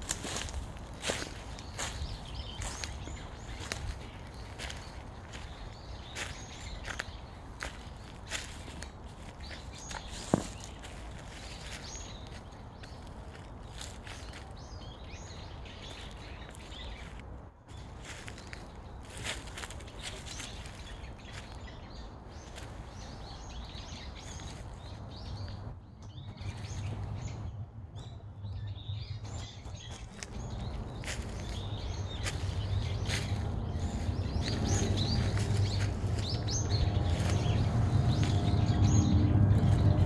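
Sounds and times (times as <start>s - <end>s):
footsteps crunching through dry leaves: 0.0s - 25.5s, 29.5s - 40.0s
small birds chirping: 0.0s - 40.0s
low rumble: 30.2s - 40.0s.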